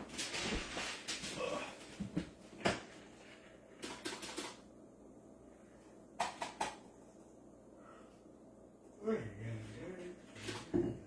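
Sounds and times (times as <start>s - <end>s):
faint room hum: 0.0s - 11.0s
household objects clicking and knocking: 3.7s - 4.7s, 6.2s - 7.2s.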